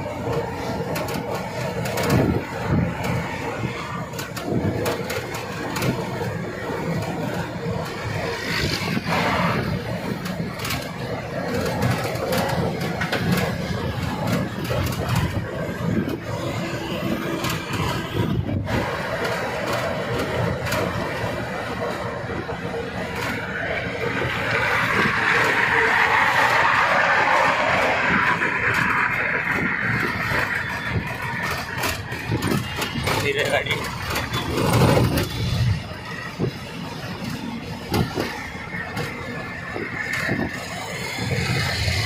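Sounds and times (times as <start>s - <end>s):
cab clicks and rattles: 0.0s - 42.0s
truck engine and road noise: 0.0s - 42.0s.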